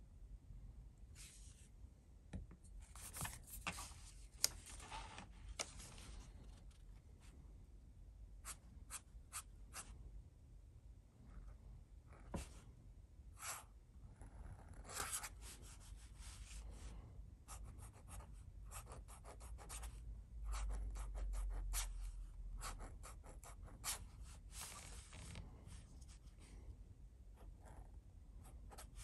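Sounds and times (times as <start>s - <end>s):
fountain pen scratching paper: 14.2s - 15.3s.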